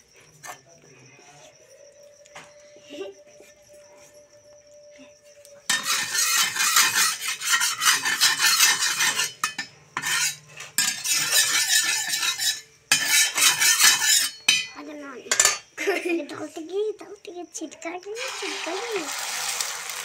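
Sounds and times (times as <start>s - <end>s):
spatula scraping iron griddle: 5.7s - 14.7s, 15.3s - 15.6s.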